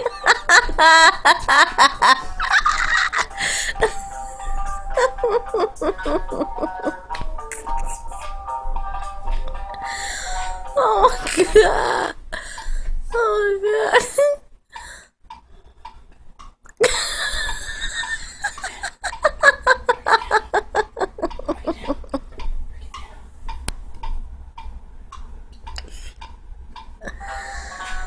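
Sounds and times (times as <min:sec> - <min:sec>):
person laughing hard: 0:00.0 - 0:07.1, 0:16.8 - 0:22.4.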